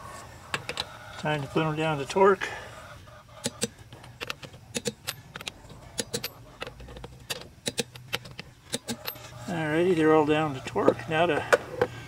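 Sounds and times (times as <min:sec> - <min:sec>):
torque wrench clicking: 0:03.4 - 0:09.2.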